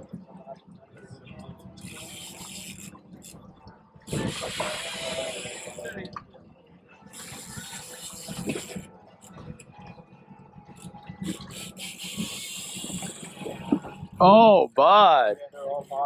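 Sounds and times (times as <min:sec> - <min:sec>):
water lapping against boat hull: 0:07.2 - 0:09.7, 0:10.9 - 0:14.2.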